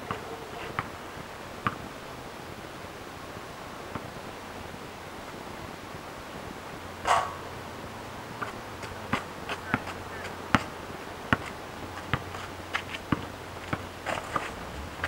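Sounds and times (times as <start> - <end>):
basketball bouncing on pavement: 1.6 - 1.9, 3.9 - 4.1, 8.4 - 15.0.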